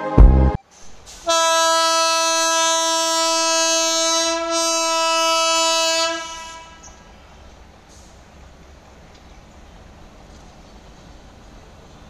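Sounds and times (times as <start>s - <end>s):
train horn blast: 1.2s - 7.0s.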